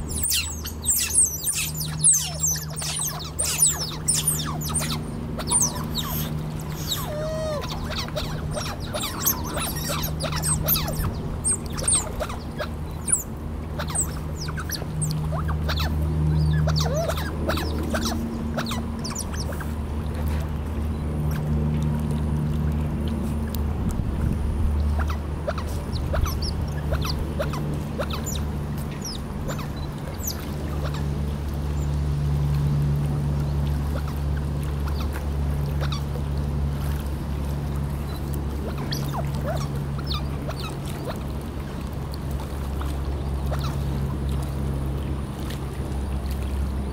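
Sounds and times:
otters chirping and squeaking: 0.0s - 19.7s, 25.0s - 31.0s, 38.7s - 40.8s
steady low hum: 0.0s - 46.9s
water splashing: 0.0s - 46.9s.

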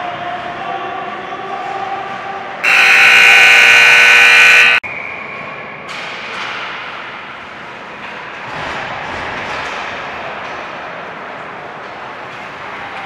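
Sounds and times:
hockey rink buzzer: 2.6s - 4.8s.

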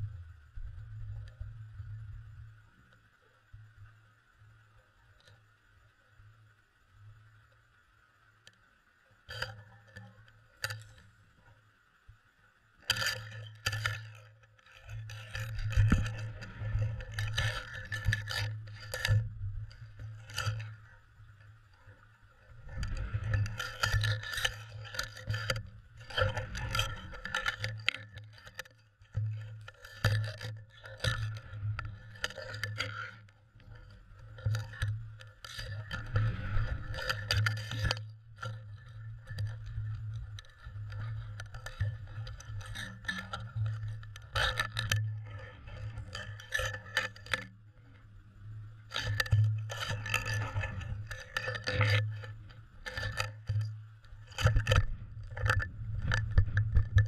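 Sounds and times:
low hum: 0.0s - 8.9s, 14.9s - 28.2s, 28.9s - 57.0s
muffled underwater knocking and rattling: 12.9s - 57.0s.

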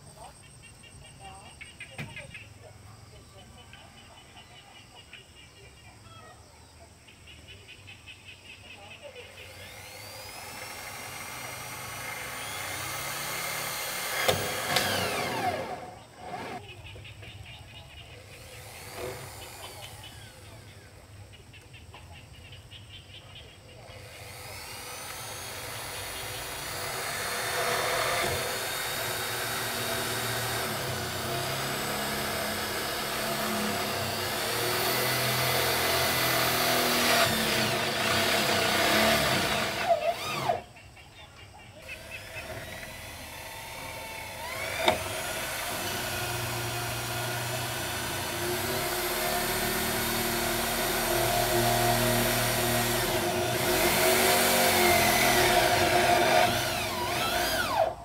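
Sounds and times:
power drill driving screws into metal: 9.5s - 16.6s, 18.4s - 20.2s, 24.1s - 40.6s, 41.9s - 58.0s.

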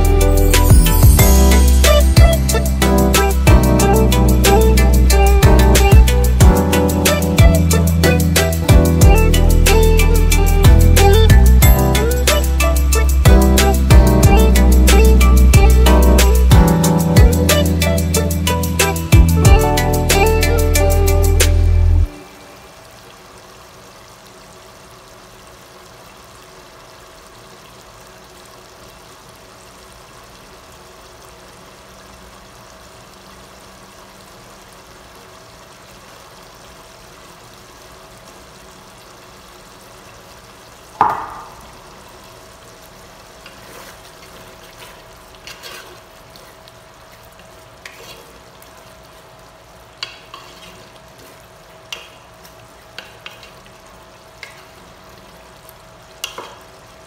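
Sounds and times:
meat sizzling in pot: 0.0s - 57.0s
loud ringing knock: 41.0s - 41.6s
wooden spoon scraping pot: 43.5s - 46.5s, 47.8s - 48.4s, 50.0s - 51.4s.

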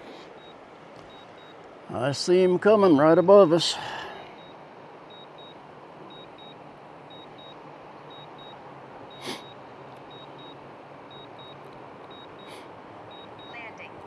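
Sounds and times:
remote controller double beeps: 9.4s - 13.8s.

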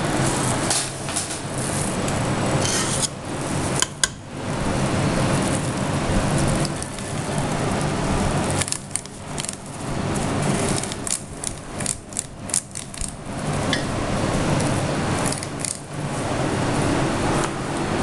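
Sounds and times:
metal scoop scraping steel bowl: 2.6s - 3.2s.

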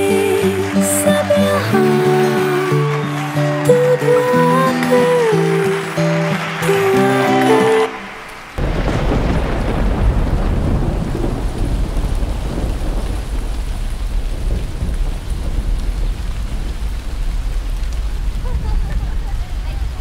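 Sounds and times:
steady rain: 0.0s - 20.0s
thunderclap rolling: 8.0s - 20.0s.

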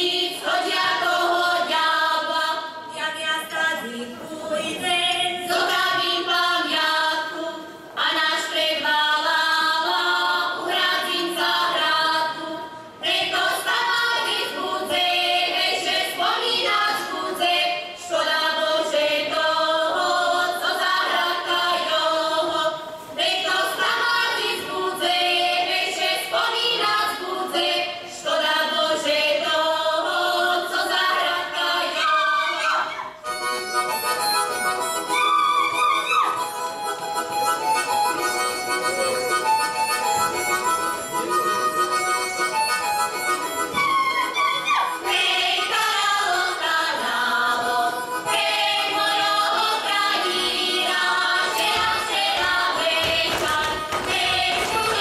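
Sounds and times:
women singing together: 0.0s - 33.2s, 43.7s - 55.0s
reedy instrumental music: 33.2s - 46.8s.

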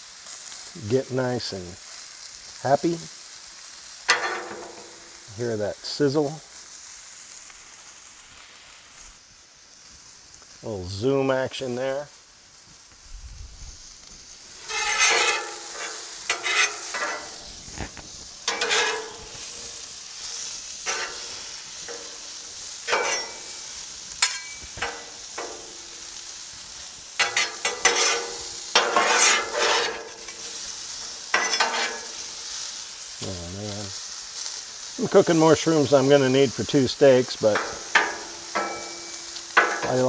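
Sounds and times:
mushrooms sizzling on a griddle: 0.0s - 40.0s
spatula scraping a griddle: 3.6s - 6.2s, 14.5s - 33.1s, 34.0s - 40.0s.

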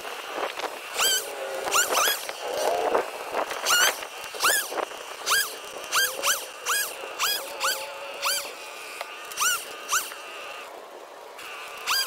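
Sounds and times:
animal high-pitched calls: 5.3s - 8.6s.

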